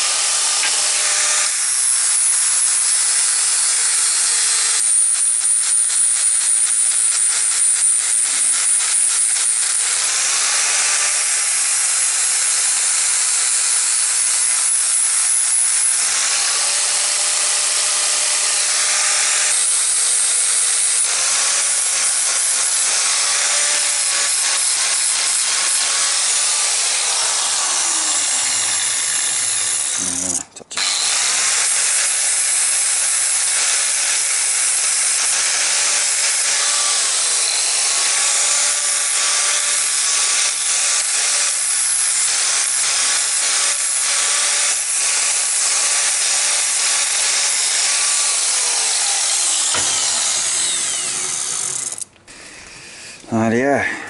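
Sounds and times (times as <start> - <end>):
angle grinder grinding steel: 0.0 - 53.7.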